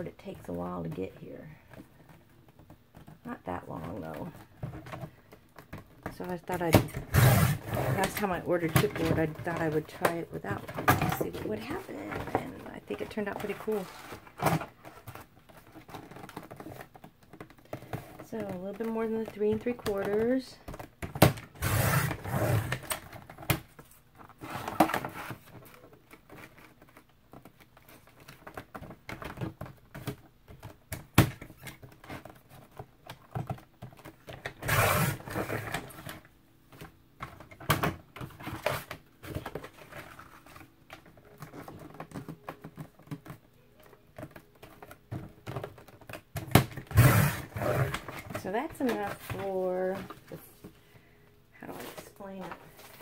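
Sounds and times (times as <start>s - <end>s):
cardboard clicks taps and rustles: 35.4s - 46.9s.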